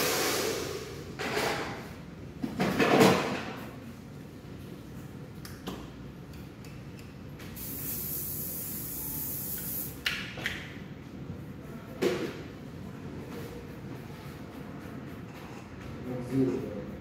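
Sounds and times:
low background hum: 0.7 - 17.0
hair spray hiss: 7.6 - 10.0.

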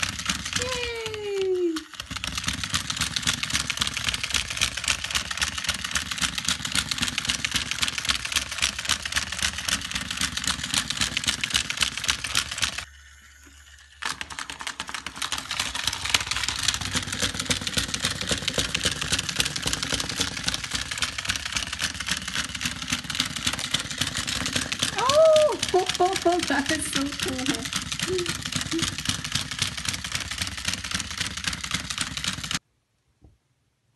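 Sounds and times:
toy mechanism whirring and clicking: 0.0 - 32.6.

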